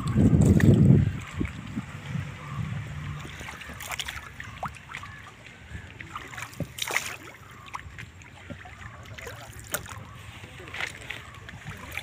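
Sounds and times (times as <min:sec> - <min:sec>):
paddle splashing water: 0:00.0 - 0:12.0.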